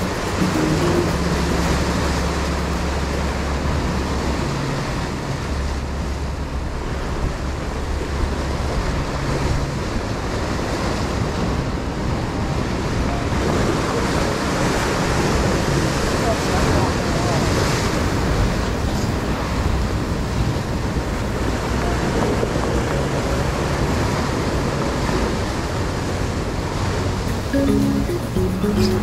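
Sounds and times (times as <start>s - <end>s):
low steady hum: 0.0s - 10.4s
waves washing on rocky shore: 0.0s - 27.5s.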